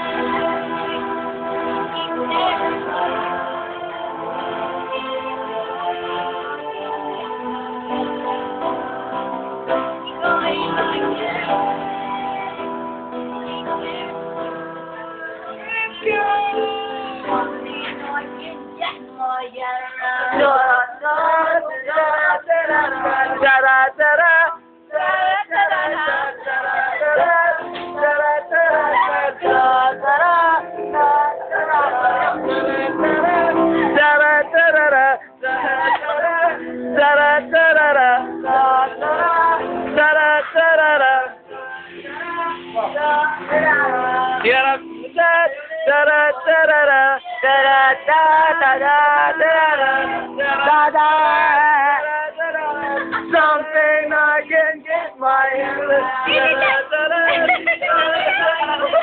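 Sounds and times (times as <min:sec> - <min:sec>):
man and woman singing: 0:00.0 - 0:59.0
music: 0:00.0 - 0:59.0.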